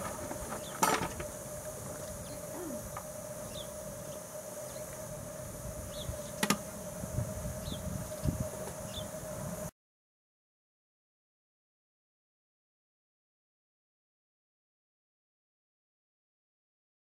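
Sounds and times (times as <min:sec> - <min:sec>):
steady whine: 0:00.0 - 0:09.7.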